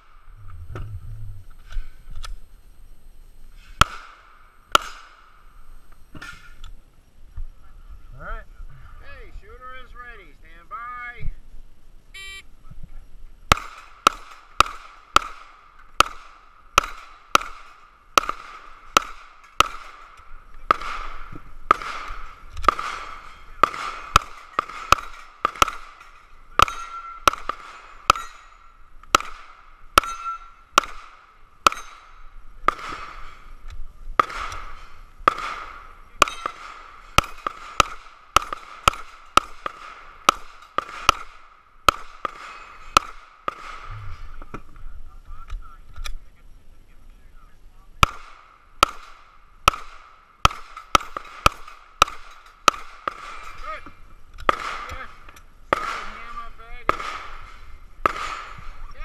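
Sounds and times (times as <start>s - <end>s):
pistol shots: 3.8s - 5.3s, 13.5s - 33.5s, 34.2s - 43.9s, 48.0s - 53.8s, 54.4s - 58.8s
steel plate ringing: 26.0s - 28.8s, 30.0s - 30.7s.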